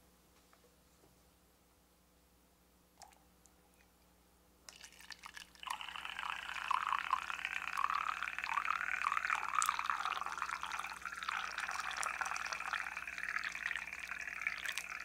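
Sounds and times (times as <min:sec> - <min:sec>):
water pouring into metal mug: 0:04.7 - 0:15.0.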